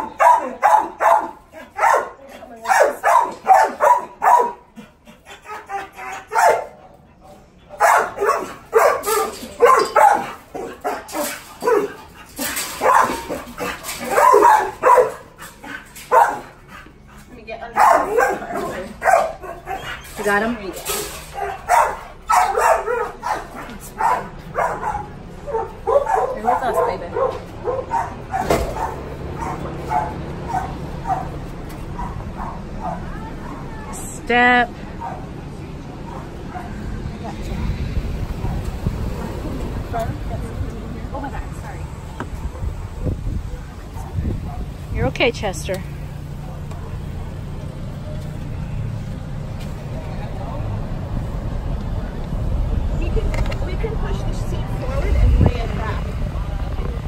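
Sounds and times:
dogs barking: 0.0s - 7.0s, 7.7s - 20.4s, 21.2s - 33.9s, 34.8s - 36.9s, 43.9s - 44.8s.

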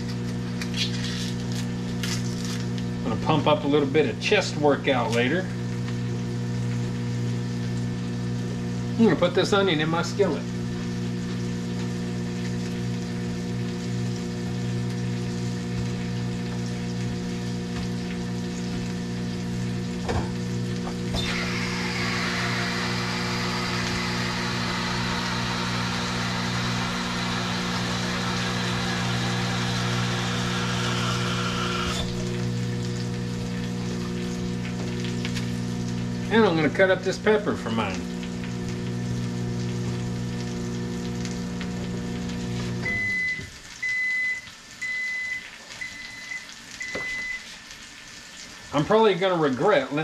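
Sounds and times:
microwave oven humming: 0.0s - 48.9s
food sizzling in a frying pan: 4.9s - 50.0s
microwave beeper: 42.8s - 47.5s.

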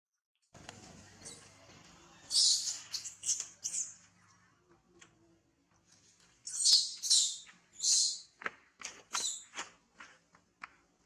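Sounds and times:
baby monkey squealing: 2.3s - 4.0s, 6.5s - 8.3s.

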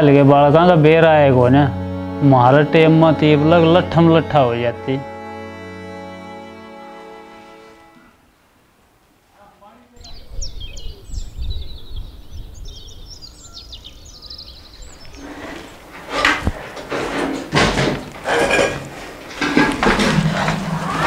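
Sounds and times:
small birds chirping: 9.6s - 15.8s
knocks and clatters: 15.9s - 21.0s.

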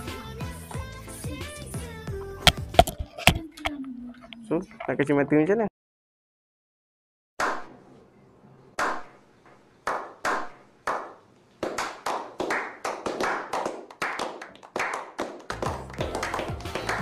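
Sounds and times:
people clapping: 9.8s - 17.0s.

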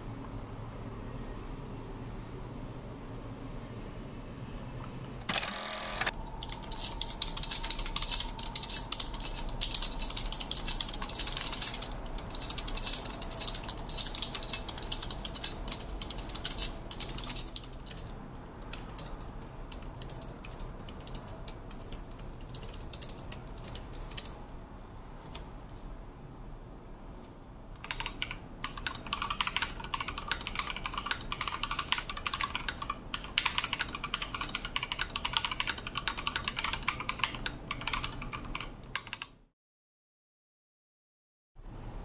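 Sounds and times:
mechanical keyboard key clacks: 5.2s - 24.4s.

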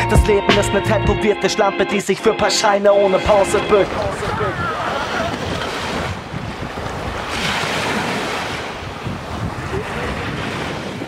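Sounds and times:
sea waves washing: 3.0s - 11.0s
wind buffeting microphone: 3.8s - 11.0s.

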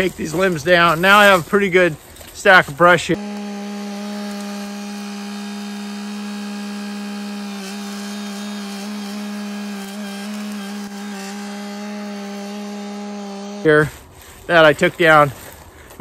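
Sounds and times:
tractor engine running: 3.2s - 13.8s.

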